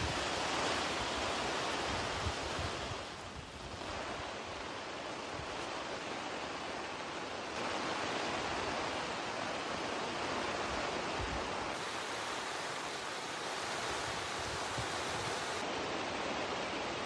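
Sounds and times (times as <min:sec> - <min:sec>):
heavy rain pouring: 0:10.3 - 0:17.0.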